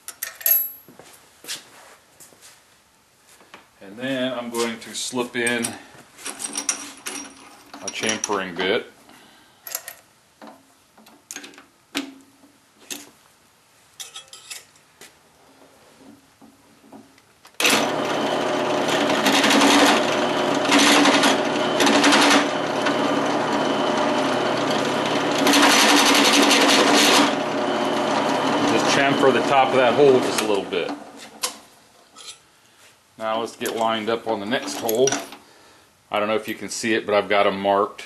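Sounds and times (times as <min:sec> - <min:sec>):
drill press running: 0:17.6 - 0:31.1.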